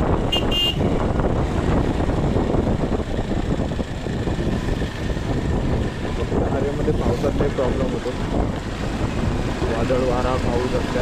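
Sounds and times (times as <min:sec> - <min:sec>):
wind buffeting microphone: 0:00.0 - 0:11.0
vehicle horn toots: 0:00.2 - 0:00.9.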